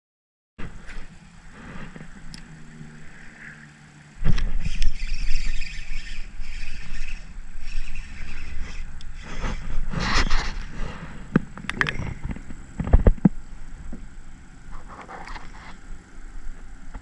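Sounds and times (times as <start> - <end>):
wind buffeting microphone: 4.1 - 17.0.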